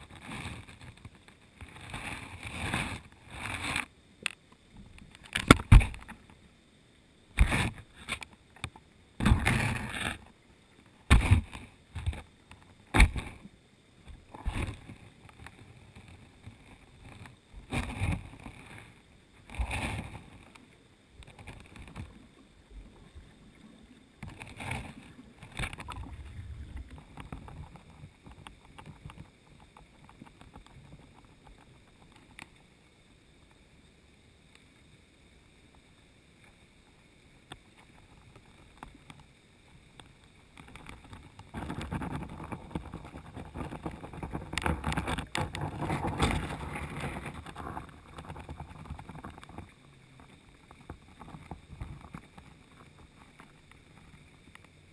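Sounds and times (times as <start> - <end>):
faint high whine: 0.0 - 54.9
underwater knocks and thuds: 11.1 - 12.2, 12.9 - 13.4
river current rushing: 24.2 - 28.4.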